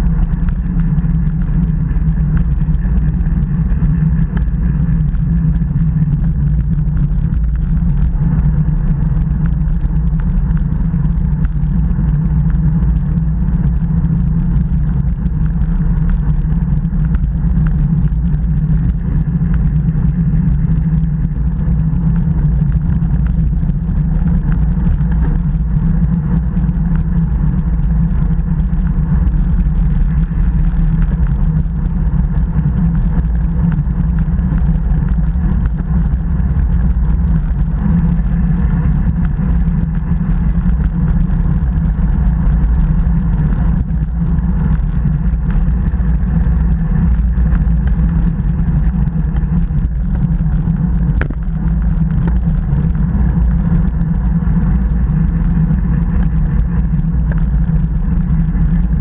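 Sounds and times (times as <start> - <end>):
wind rush over microphone: 0.0 - 59.0.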